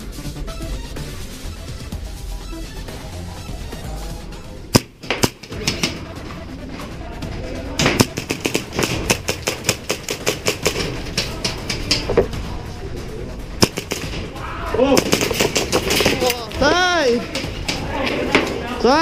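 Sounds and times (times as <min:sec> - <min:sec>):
background music: 0:00.0 - 0:19.0
airsoft guns firing: 0:04.7 - 0:06.0, 0:07.8 - 0:12.0, 0:13.6 - 0:16.6.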